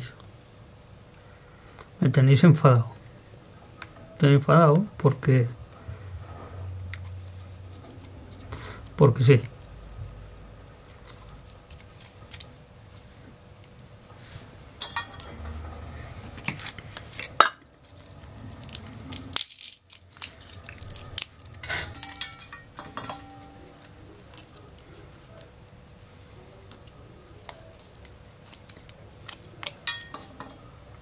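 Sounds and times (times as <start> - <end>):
wood cracking and snapping: 16.6 - 21.6.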